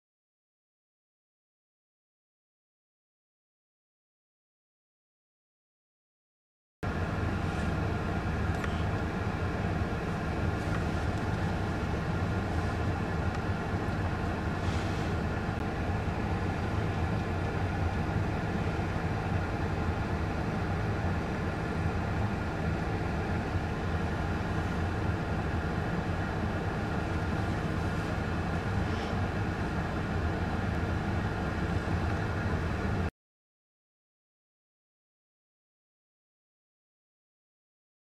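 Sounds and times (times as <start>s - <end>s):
vehicle engine idling: 6.8s - 33.1s.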